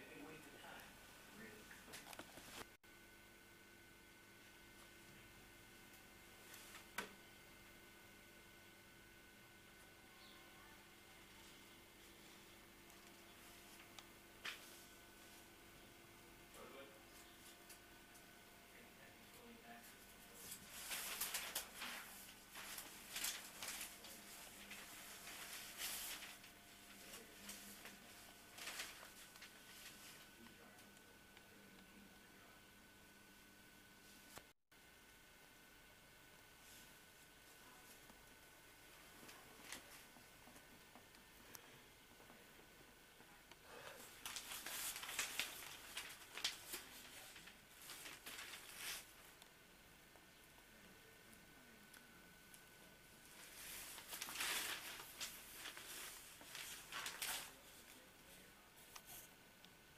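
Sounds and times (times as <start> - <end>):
faint steady hum: 0.0 - 59.9
newspaper pages rustling: 20.3 - 30.3, 44.0 - 49.2, 53.3 - 58.1.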